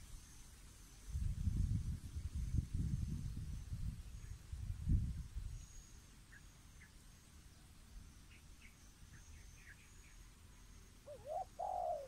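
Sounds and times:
small birds chirping: 5.4 - 12.0
dove cooing: 11.0 - 12.0.

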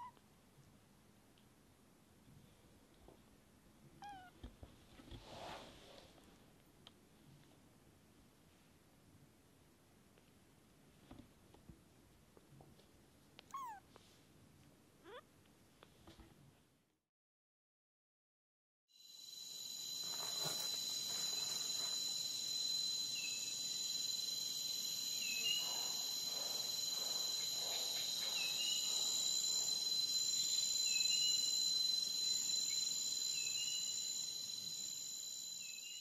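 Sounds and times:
insects chirring: 19.0 - 36.0
short insect chirp: 19.0 - 36.0.

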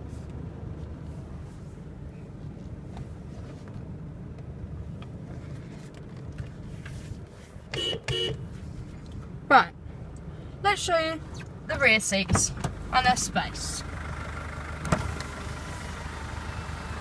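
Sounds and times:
truck horn toots: 7.7 - 8.4
diesel engine idling: 7.8 - 17.0.

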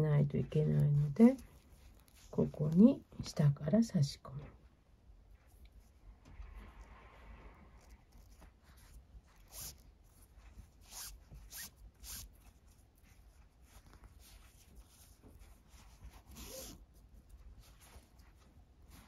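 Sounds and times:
cord rustling through loops: 0.0 - 19.0.

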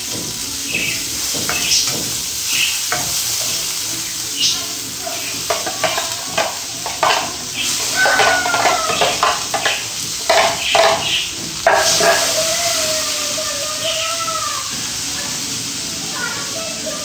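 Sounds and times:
vegetables sizzling in hot oil: 0.0 - 17.0
spoon scraping metal pan: 5.2 - 12.4.

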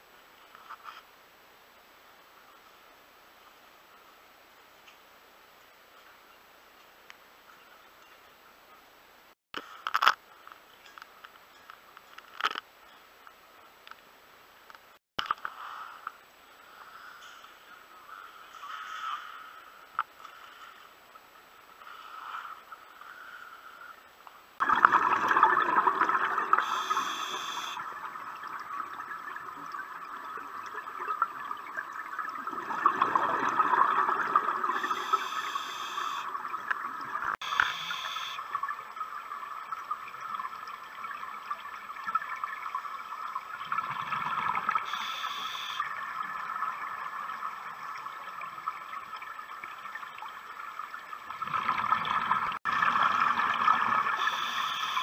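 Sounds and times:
underwater exhaled bubbles: 24.6 - 37.4, 38.5 - 50.2, 51.0 - 54.7
regulator inhale hiss: 26.6 - 27.8, 34.8 - 36.3, 37.4 - 38.4, 44.8 - 45.8, 54.2 - 55.0.

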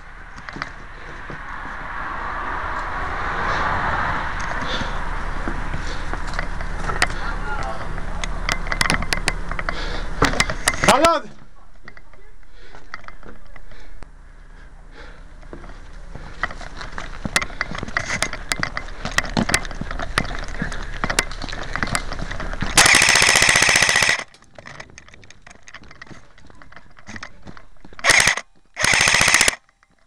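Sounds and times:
airsoft gun firing bursts: 22.8 - 24.3, 28.0 - 29.6.

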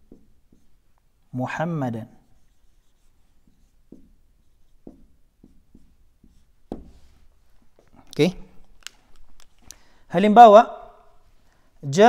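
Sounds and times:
marker writing on whiteboard: 0.0 - 8.5.

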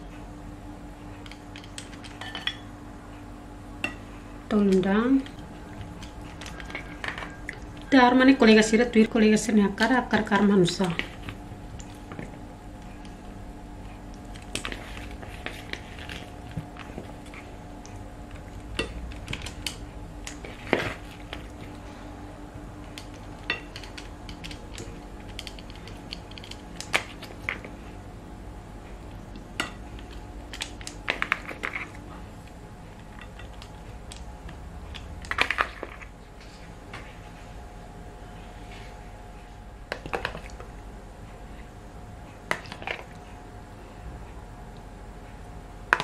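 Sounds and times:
faint steady hum: 0.0 - 46.0
tongs clicking and scraping: 22.9 - 27.6.

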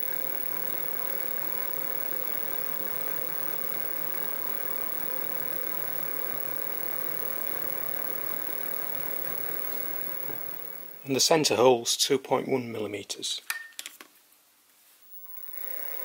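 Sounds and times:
mill spindle motor running: 0.0 - 11.1, 15.2 - 16.0.

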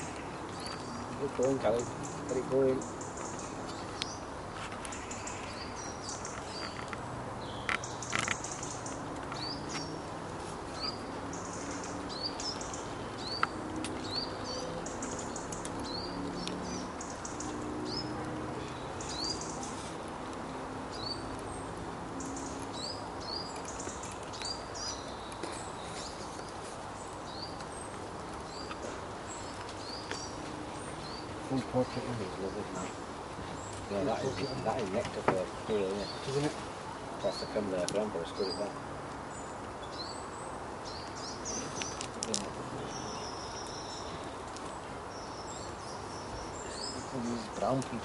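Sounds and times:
squirrel gnawing a nut: 0.0 - 31.7, 40.9 - 46.9
small bird chirping: 0.0 - 36.6, 37.2 - 48.0.

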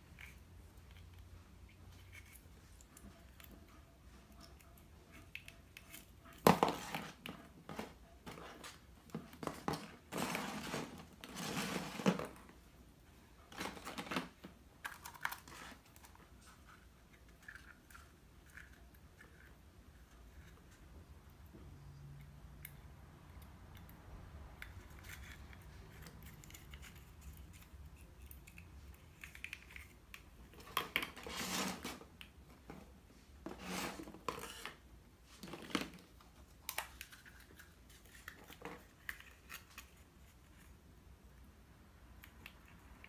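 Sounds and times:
scraping and rustling: 5.0 - 12.7, 24.7 - 40.9.

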